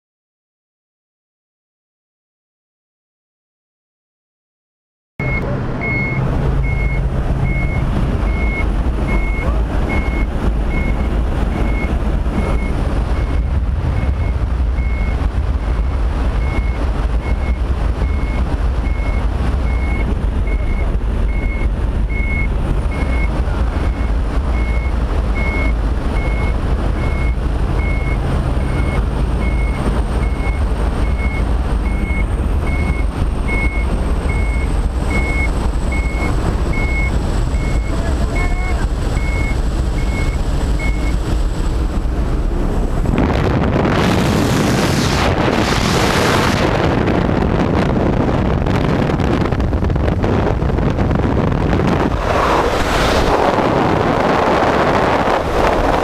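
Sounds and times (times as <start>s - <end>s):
light aircraft engine droning: 5.2s - 46.7s, 49.2s - 56.0s
wind rushing through open door: 38.8s - 56.0s.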